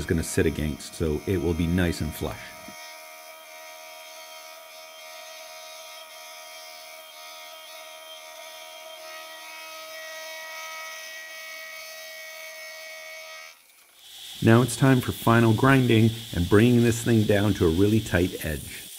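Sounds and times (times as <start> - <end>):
milling machine whining: 0.0 - 18.9.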